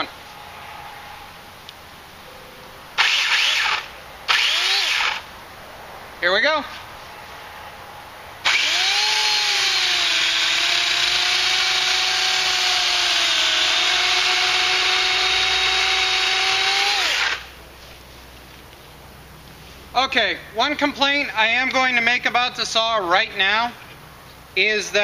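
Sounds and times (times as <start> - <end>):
electric chainsaw cutting: 3.0 - 5.3, 8.4 - 17.6.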